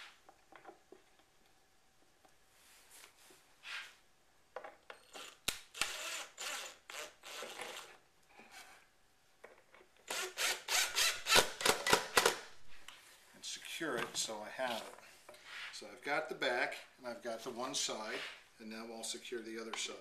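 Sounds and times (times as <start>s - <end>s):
cordless drill driving screws: 5.1s - 8.0s, 10.1s - 12.3s
wooden panel scraping boards: 18.1s - 18.5s.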